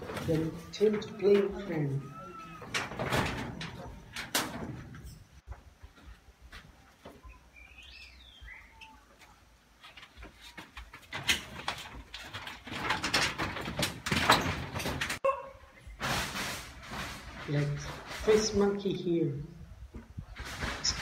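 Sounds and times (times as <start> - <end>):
rustling and crackling: 8.7 - 15.2, 15.8 - 21.0.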